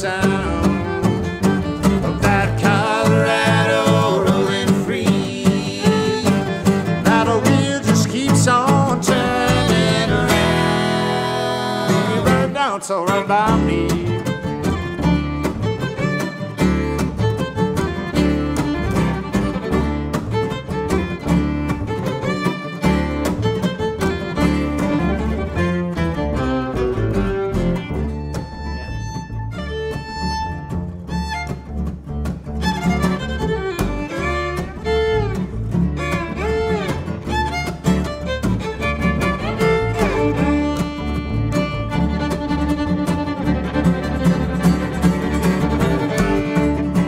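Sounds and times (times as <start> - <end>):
bowed fiddle: 0.0 - 47.0
plucked double bass: 0.0 - 47.0
strummed acoustic guitar: 0.0 - 47.0.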